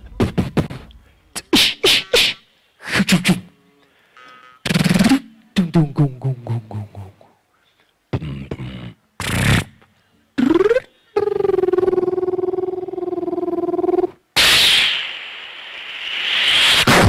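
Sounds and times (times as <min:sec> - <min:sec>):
beatboxing: 0:00.0 - 0:03.5, 0:04.3 - 0:07.4, 0:08.1 - 0:14.8.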